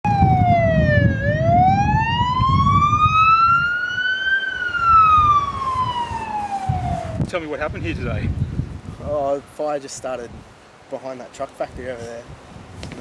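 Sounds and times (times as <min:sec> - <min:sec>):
siren wailing: 0:00.0 - 0:07.3.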